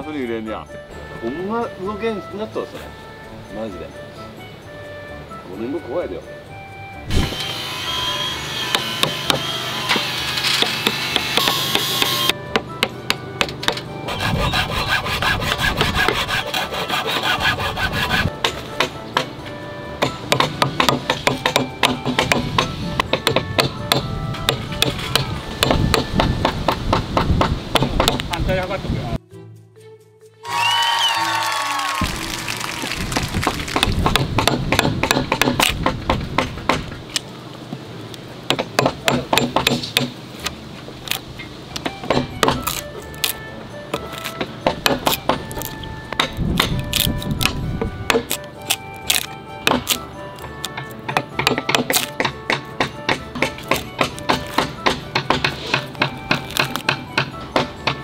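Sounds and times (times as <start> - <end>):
handsaw cutting wood: 7.1 - 12.3, 14.0 - 18.4, 53.3 - 57.0
hammer striking chisel: 8.7 - 19.4, 20.0 - 28.3, 33.7 - 37.0, 38.5 - 40.2, 41.8 - 58.0.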